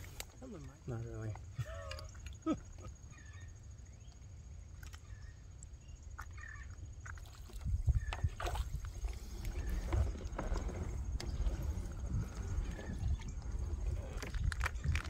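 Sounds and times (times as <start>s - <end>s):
faint bird chirps: 0.4s - 10.2s
wind rumble on microphone: 7.2s - 15.0s.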